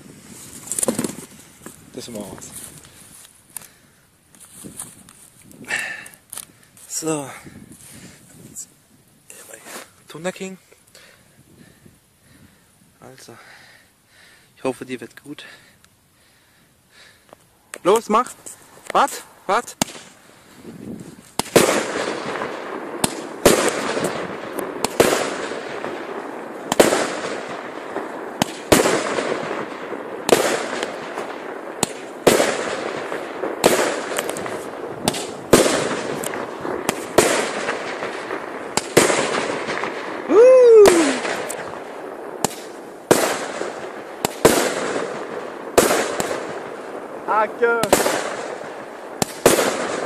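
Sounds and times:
firework bangs echoing: 18.9s - 20.2s, 20.8s - 50.0s
falling firework whistle: 40.2s - 41.7s.

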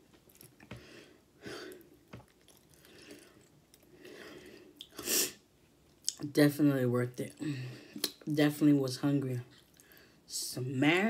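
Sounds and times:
wet mouth noises and breaths: 0.2s - 5.1s
close chewing: 1.8s - 4.0s.

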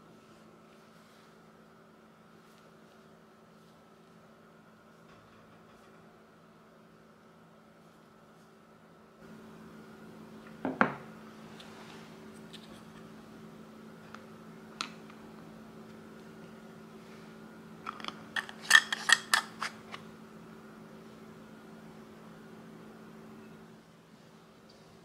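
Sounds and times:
steady low hum: 0.0s - 25.0s
screw cap clicking and scraping: 17.9s - 19.8s.

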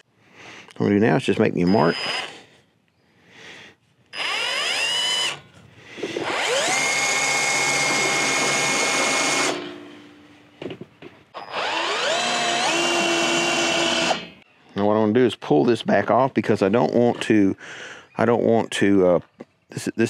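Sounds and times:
cordless drill whine: 1.6s - 2.4s, 4.1s - 5.4s, 6.0s - 9.7s, 11.4s - 14.4s.

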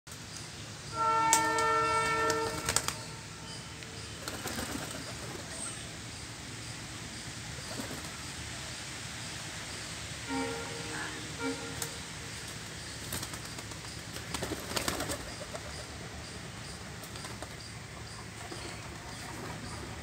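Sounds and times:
low background noise: 0.1s - 20.0s
horn held tone: 0.9s - 3.8s, 10.2s - 12.2s.

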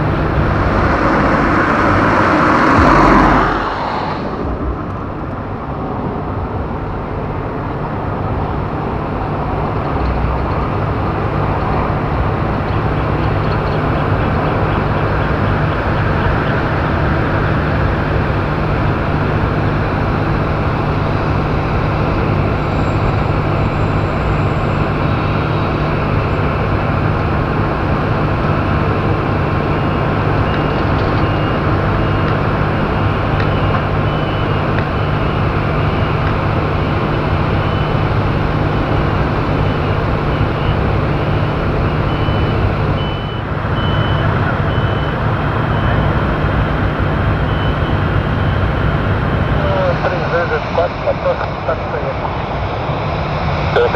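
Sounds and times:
low steady hum: 0.0s - 6.2s
jet engine noise: 0.0s - 53.9s.

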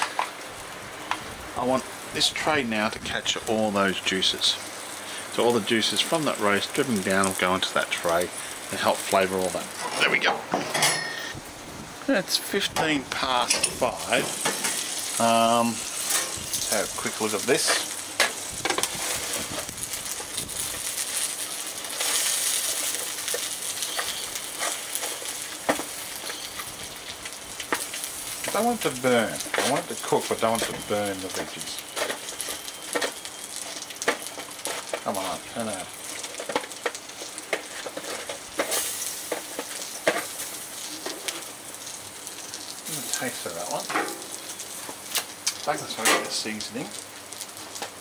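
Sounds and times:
food sizzling on barbecue: 0.0s - 48.0s
clicks in foil tray: 27.6s - 41.5s.

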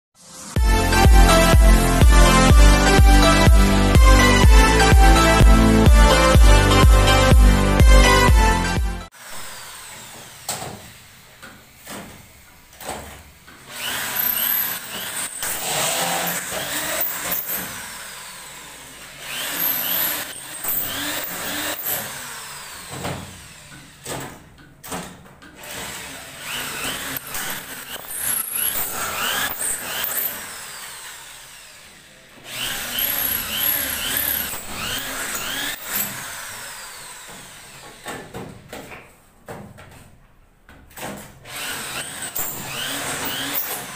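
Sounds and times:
power drill driving screws: 9.1s - 24.4s, 25.6s - 38.5s, 41.4s - 43.9s.

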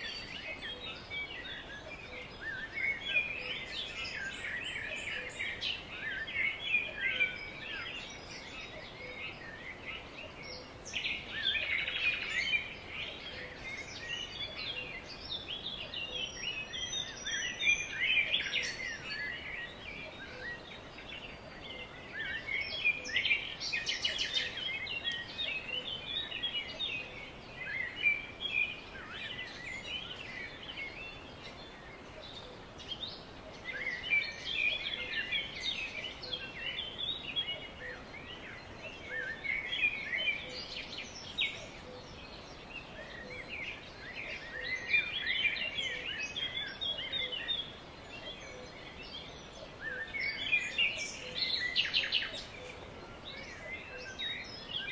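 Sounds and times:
faint background hiss: 0.0s - 54.9s
songbirds chirping and trilling: 0.0s - 54.9s.

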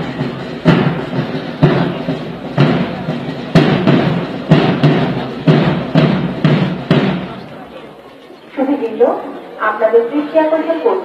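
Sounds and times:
parade band drums beating a march: 0.0s - 7.8s.

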